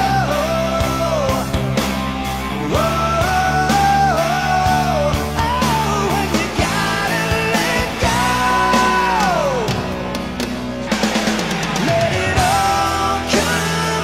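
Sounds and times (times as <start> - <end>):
hard rock band playing: 0.0 - 14.0.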